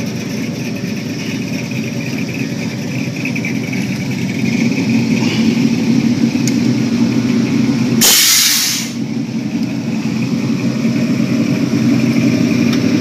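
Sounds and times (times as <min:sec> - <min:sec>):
car engine running: 0:00.0 - 0:13.0
loud hiss: 0:08.0 - 0:09.0.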